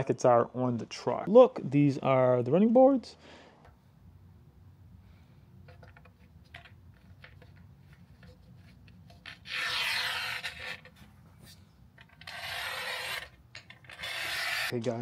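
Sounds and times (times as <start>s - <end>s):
rasping metal scrapes: 9.1s - 11.0s, 12.0s - 14.7s.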